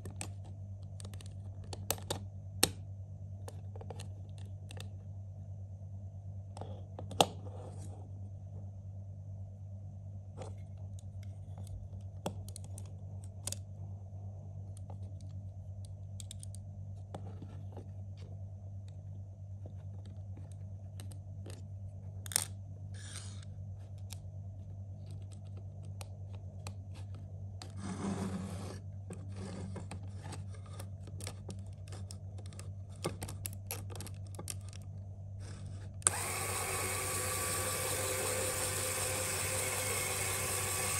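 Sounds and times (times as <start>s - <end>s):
plastic parts clicking and snapping: 0.0s - 2.8s, 10.9s - 13.6s, 14.7s - 16.6s, 25.0s - 26.8s, 29.9s - 35.0s
steady low hum: 0.0s - 40.9s.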